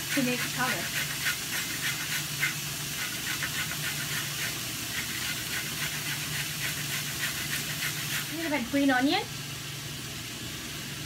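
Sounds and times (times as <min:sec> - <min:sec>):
carrot being grated: 0:00.0 - 0:08.6
mushrooms sizzling in a pan: 0:00.0 - 0:11.0.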